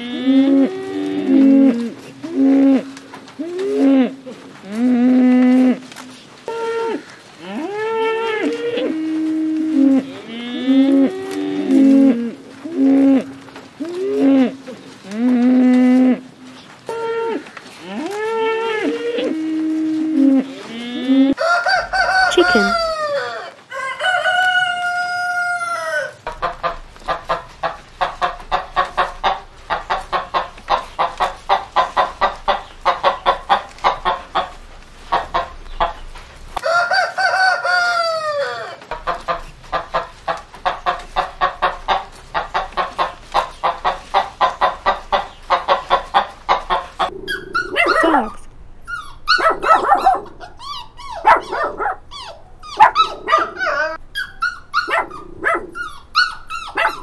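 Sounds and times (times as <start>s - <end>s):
chicken clucking: 18.8s - 57.0s
rooster crowing: 21.0s - 26.3s, 36.6s - 38.9s
small dog barking and yelping: 47.0s - 57.0s.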